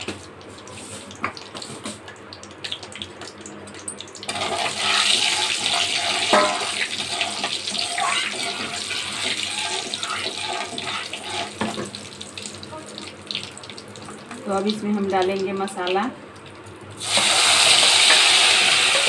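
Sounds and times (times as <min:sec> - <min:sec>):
loud steady sizzle: 0:00.0 - 0:19.0
spices crackling in hot oil: 0:00.0 - 0:19.0
metal spatula stirring: 0:04.4 - 0:11.7.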